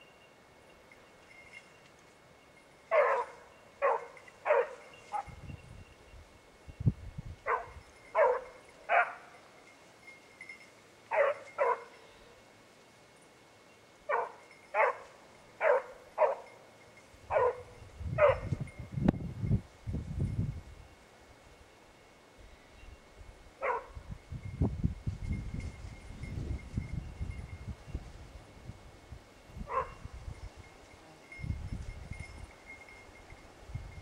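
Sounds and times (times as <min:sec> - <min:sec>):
hound baying: 0:02.9 - 0:05.4, 0:07.4 - 0:09.4, 0:11.1 - 0:12.1, 0:14.1 - 0:16.6, 0:17.3 - 0:18.5, 0:23.6 - 0:24.0, 0:29.7 - 0:30.0.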